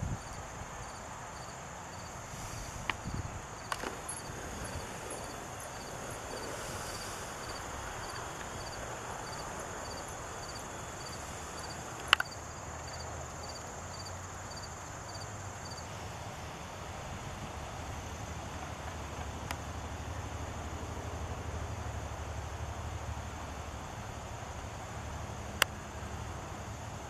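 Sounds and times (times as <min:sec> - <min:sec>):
insect chirping: 0:00.0 - 0:16.5.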